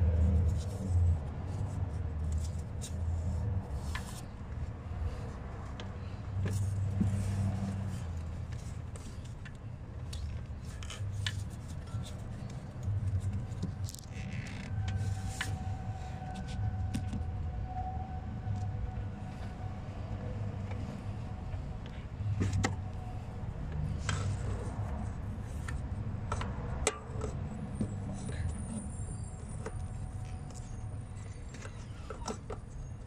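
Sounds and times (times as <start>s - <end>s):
clicks and scrapes of plastic fittings: 5.7s - 15.6s.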